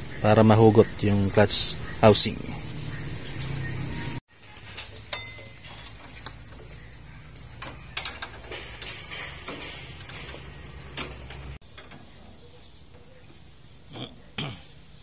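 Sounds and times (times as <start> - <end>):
spanner clinking on metal bolts: 4.6 - 12.3.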